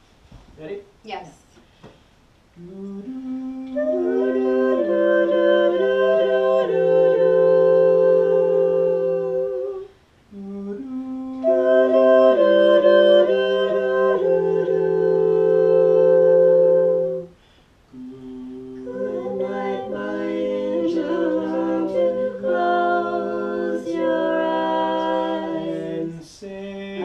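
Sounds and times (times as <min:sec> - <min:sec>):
a cappella quartet singing chords: 0:02.6 - 0:27.0.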